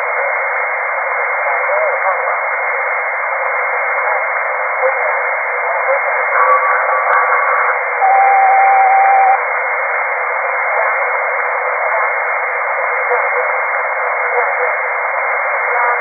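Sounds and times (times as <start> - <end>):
radio hiss: 0.0 - 16.0
faint low hum: 3.9 - 16.0
faint tone: 8.0 - 9.4
steady ringing tone: 8.0 - 9.4.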